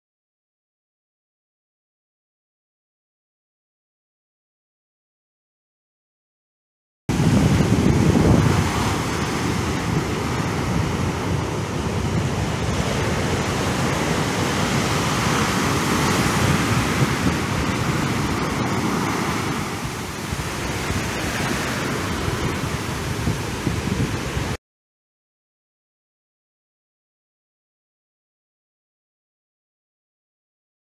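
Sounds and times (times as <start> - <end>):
waves breaking on beach: 7.1 - 24.6.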